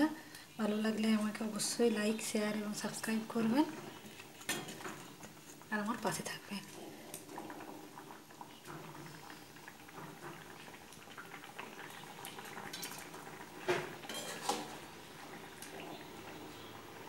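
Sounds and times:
gravy bubbling in a pan: 0.0 - 17.0
metal spoon clinking on pan: 14.1 - 14.6.

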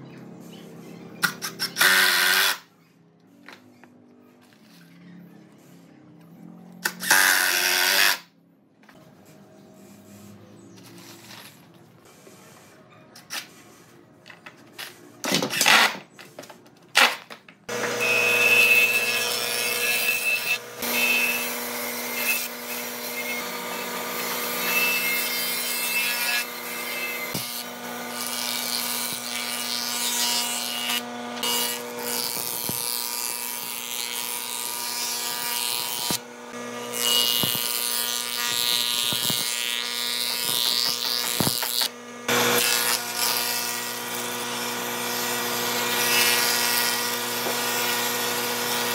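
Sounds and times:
planing machine humming: 17.7 - 25.9, 26.5 - 48.9.

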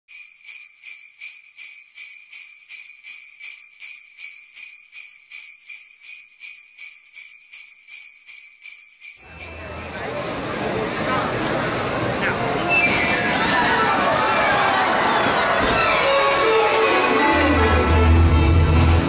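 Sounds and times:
sleigh bells shaking: 0.1 - 11.3
loud crowd hubbub: 9.2 - 19.0.

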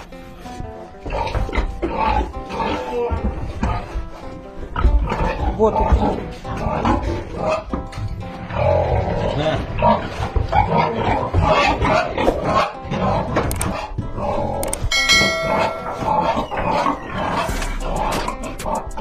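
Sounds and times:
pigs grunting and snuffling: 0.0 - 19.0
bell-like chime: 14.9 - 16.9.

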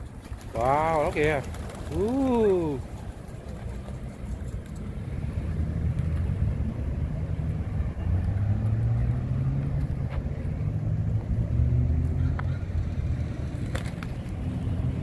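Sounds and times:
vehicle engine rumbling: 0.0 - 15.0.

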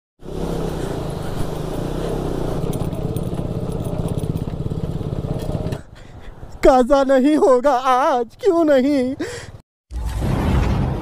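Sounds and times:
motorcycle engine running: 0.2 - 5.9.

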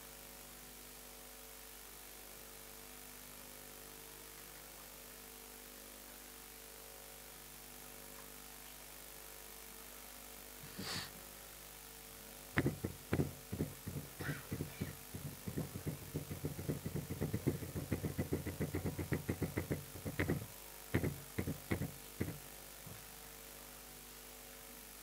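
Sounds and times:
marker writing on whiteboard: 12.6 - 22.4.

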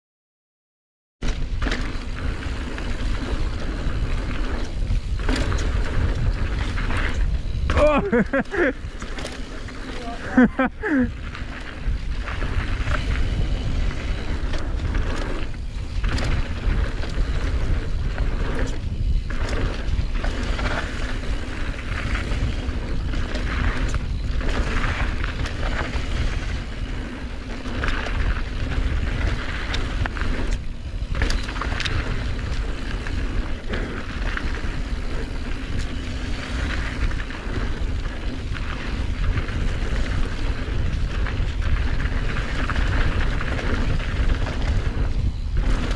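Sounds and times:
bike rattling over bumps: 1.2 - 45.9
tyres on dirt trail: 1.2 - 45.9
wind buffeting microphone: 1.4 - 45.9.

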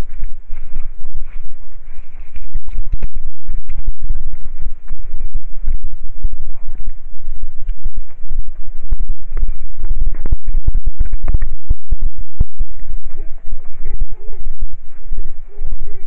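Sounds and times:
wind on microphone: 0.0 - 16.0.

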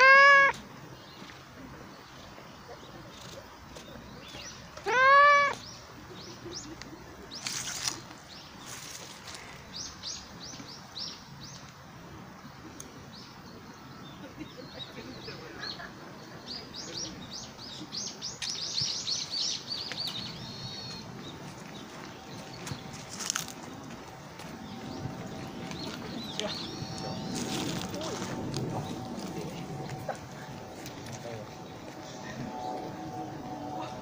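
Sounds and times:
cat meowing: 0.0 - 0.6, 4.8 - 5.6
small birds chirping: 0.0 - 11.8, 12.4 - 34.0.

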